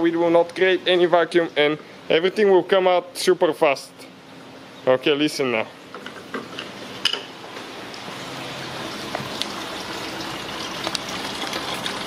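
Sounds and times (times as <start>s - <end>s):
coolant pouring into plastic bucket: 8.5s - 12.0s.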